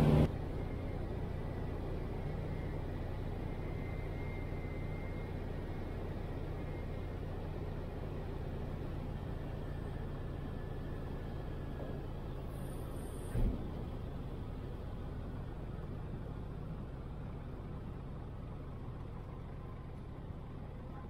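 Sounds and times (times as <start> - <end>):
small plane engine from cabin: 0.0 - 13.4.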